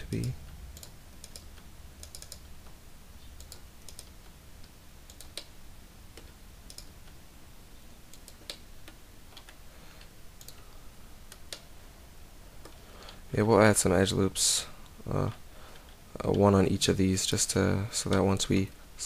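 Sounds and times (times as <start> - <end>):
keyboard and mouse clicks: 0.0 - 5.5, 6.1 - 7.2, 8.1 - 10.6, 11.3 - 11.7
faint low hum: 0.0 - 19.0.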